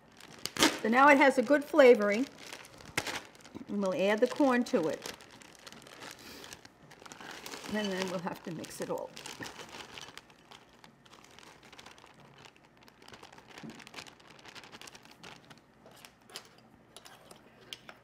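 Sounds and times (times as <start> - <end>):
plastic bag crinkling: 0.0 - 16.5.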